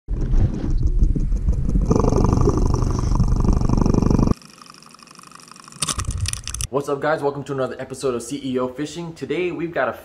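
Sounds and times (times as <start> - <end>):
water rumbling against microphone: 0.1 - 4.3
sharp clicks: 5.8 - 6.7.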